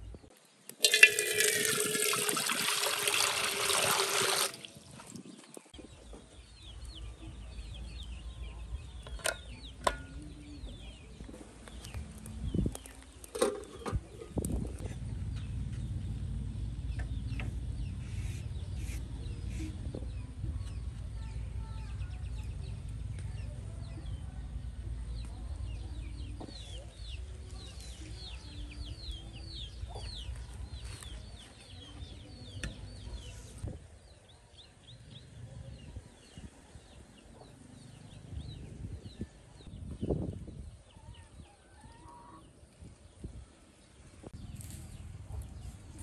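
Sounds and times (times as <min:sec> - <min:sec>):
steady low rumble: 0:14.0 - 0:34.0, 0:43.2 - 0:46.0.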